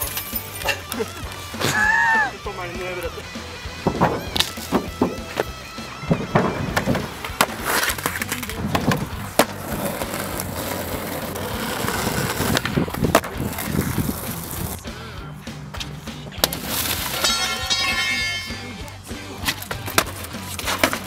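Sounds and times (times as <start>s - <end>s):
skateboard wheels rolling on asphalt: 0.0s - 17.2s, 19.2s - 21.0s
skateboard clacks: 2.8s - 14.8s, 15.6s - 21.0s.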